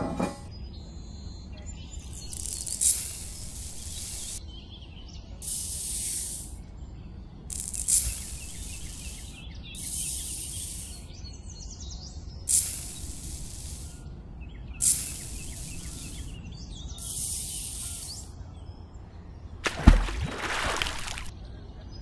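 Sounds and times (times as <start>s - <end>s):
short hissing spray bursts: 2.2s - 4.4s, 5.4s - 6.6s, 7.5s - 11.1s, 12.5s - 14.0s, 14.8s - 16.3s, 17.0s - 18.3s.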